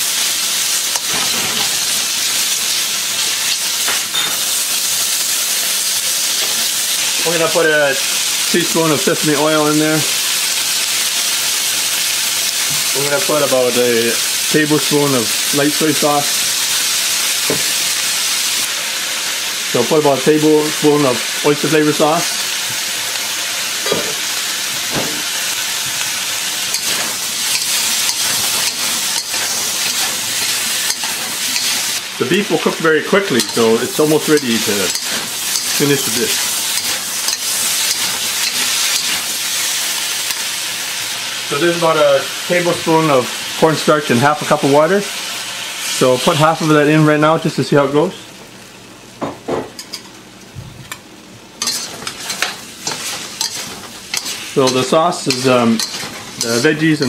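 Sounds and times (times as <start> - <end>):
food sizzling in a wok: 0.0 - 57.0
spatula scraping wok: 24.9 - 40.4, 51.6 - 57.0.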